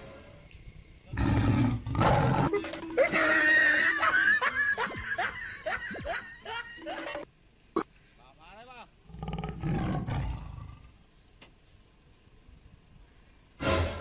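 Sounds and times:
person laughing: 2.5s - 7.2s.

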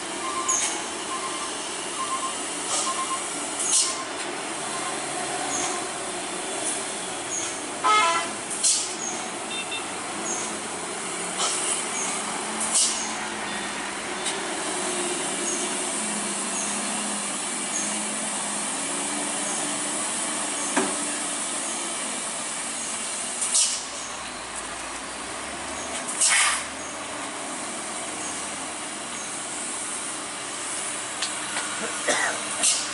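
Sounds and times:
air brake hisses: 3.5s - 4.0s, 8.6s - 9.0s, 12.6s - 13.1s, 23.4s - 23.9s, 26.1s - 26.7s
truck horn toot: 7.8s - 8.4s, 9.5s - 9.9s.

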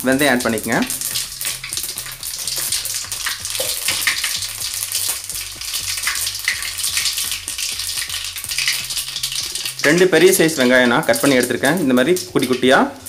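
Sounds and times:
seeds sizzling in hot oil: 0.0s - 13.0s.

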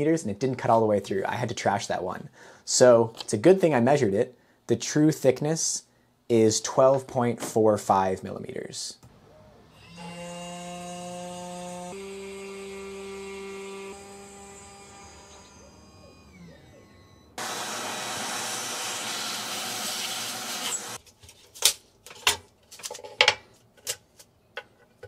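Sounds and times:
spindle whining and spinning down: 12.7s - 18.5s.

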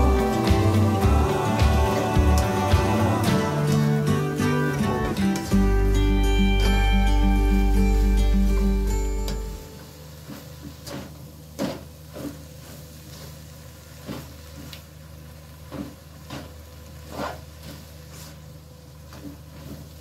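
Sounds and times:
steady low hum: 0.0s - 20.0s
spatula scraping a wok: 16.3s - 18.5s.

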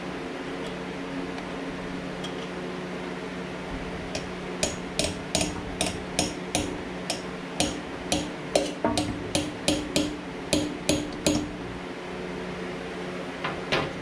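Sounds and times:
hammer striking metal: 4.2s - 11.6s.

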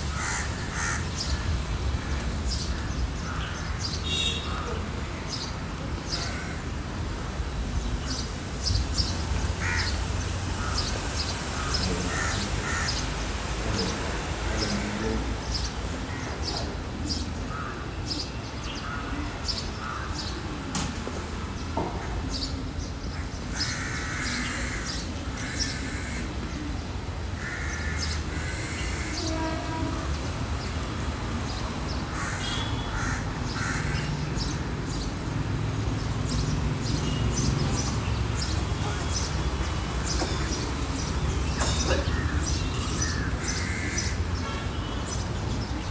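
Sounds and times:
crows cawing: 0.1s - 4.8s, 6.2s - 6.6s, 9.6s - 10.0s, 11.5s - 13.1s, 17.5s - 18.0s, 19.8s - 20.2s, 23.5s - 26.3s, 27.4s - 29.2s, 32.1s - 34.3s, 42.0s - 44.2s.

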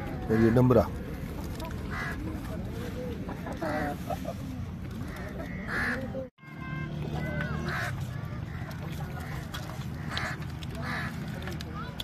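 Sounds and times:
busy background noise: 0.0s - 12.0s.

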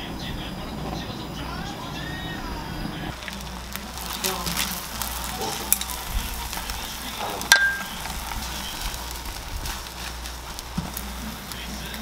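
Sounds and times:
egg sizzling in frying pan: 2.0s - 12.0s
utensils tapping pan: 3.1s - 12.0s.

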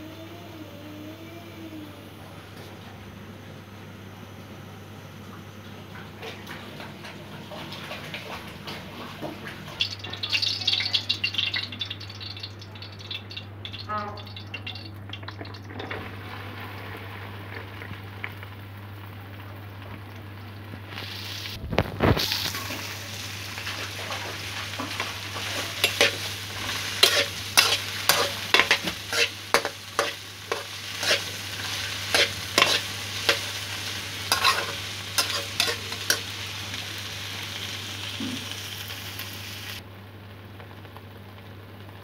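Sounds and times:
vegetables sizzling in hot oil: 9.6s - 42.0s
spatula scraping the pan: 24.8s - 33.6s, 34.3s - 36.2s.

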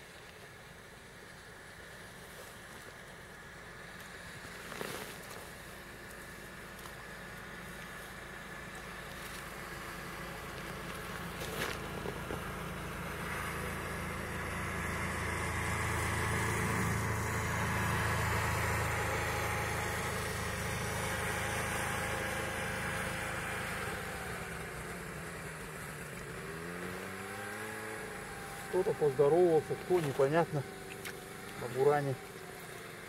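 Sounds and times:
snowmobile engine passing: 7.1s - 33.0s.

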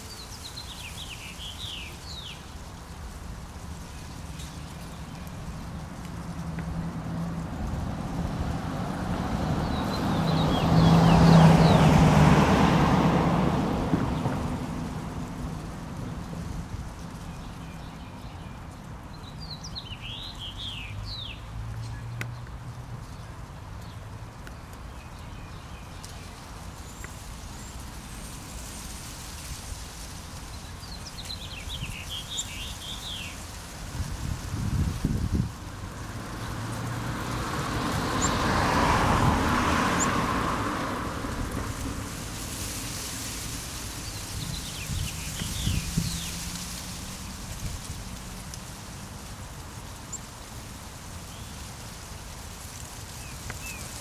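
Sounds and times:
vehicle passing by: 0.2s - 54.0s
bird chirping: 30.5s - 33.4s.

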